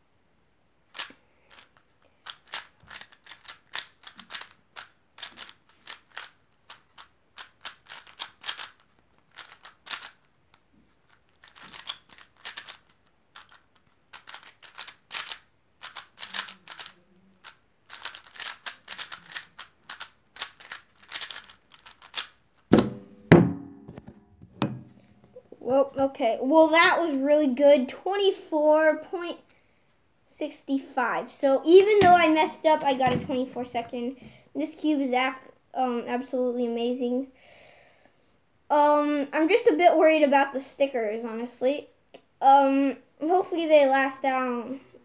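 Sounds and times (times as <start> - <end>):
puzzle cube clicking: 0.9 - 23.0, 31.8 - 33.0.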